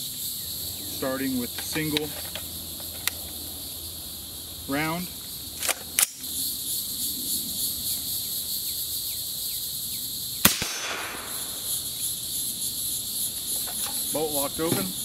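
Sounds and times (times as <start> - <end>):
insects droning: 0.0 - 15.0
suppressed gunshot: 10.4 - 11.7.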